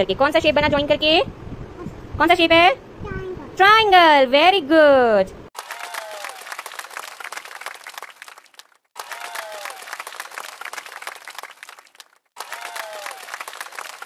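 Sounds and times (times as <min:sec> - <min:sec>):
crowd clapping: 0:05.6 - 0:14.0.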